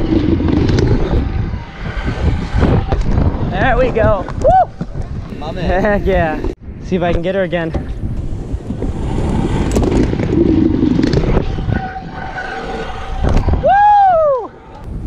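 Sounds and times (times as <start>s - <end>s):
scooter wheels rolling fast: 0.0s - 6.5s, 7.8s - 15.0s
wind rushing past camera: 0.0s - 15.0s
loud high whoop: 4.4s - 4.8s, 13.4s - 14.6s.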